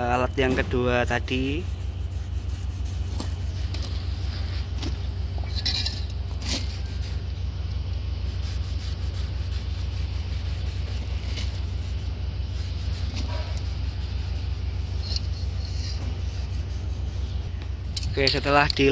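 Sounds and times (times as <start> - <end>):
cloth wiping metal: 0.0 - 18.9
steady low hum: 0.0 - 18.9
scrapes and light clinks: 3.1 - 7.2, 14.7 - 16.7, 17.9 - 18.9.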